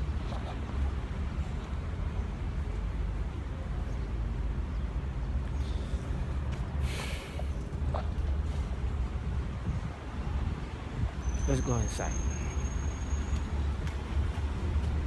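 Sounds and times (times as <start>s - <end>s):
city background rumble: 0.0s - 15.0s
short hiss: 6.8s - 7.5s.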